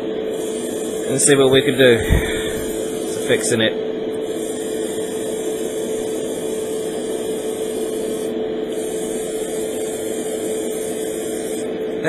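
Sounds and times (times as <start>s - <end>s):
airbrush spraying hiss: 0.0s - 3.6s, 4.2s - 11.8s
motor hum: 0.0s - 12.0s.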